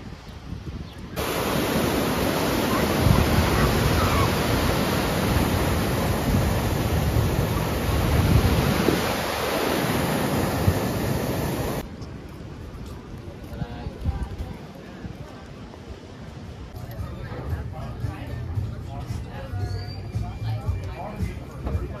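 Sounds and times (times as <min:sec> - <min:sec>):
ocean waves breaking: 0:01.2 - 0:11.8.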